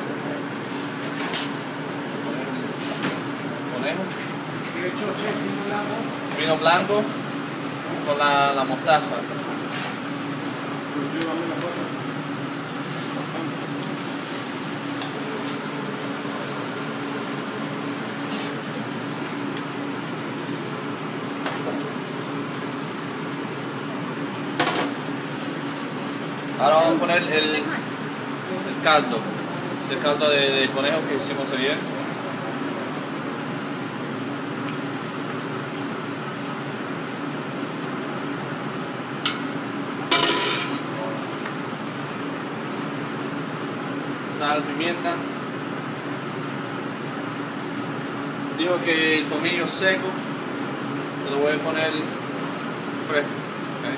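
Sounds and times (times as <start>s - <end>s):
fan-like hum and hiss: 0.0s - 53.9s
meat sizzling in a pan: 5.3s - 18.6s.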